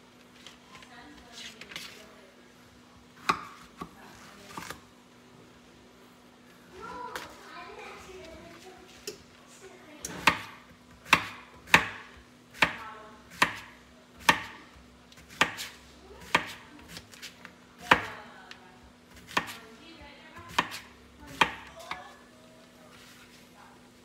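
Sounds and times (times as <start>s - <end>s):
knife slicing on cutting board: 15.2s - 18.1s, 19.2s - 19.6s.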